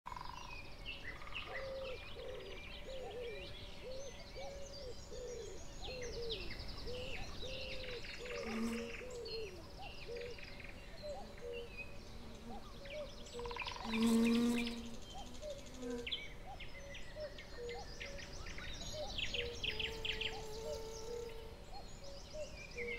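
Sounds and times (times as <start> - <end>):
songbirds chirping and trilling: 0.1 - 22.9.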